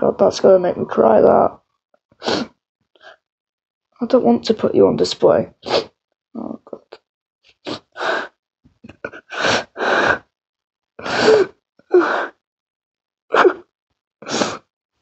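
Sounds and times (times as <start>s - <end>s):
person sobbing: 8.9s - 10.2s, 13.3s - 13.6s.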